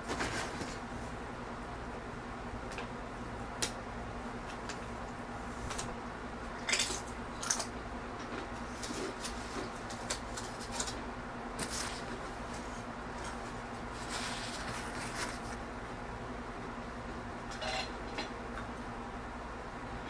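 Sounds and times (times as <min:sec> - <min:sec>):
chip crunching and chewing: 0:06.5 - 0:11.0.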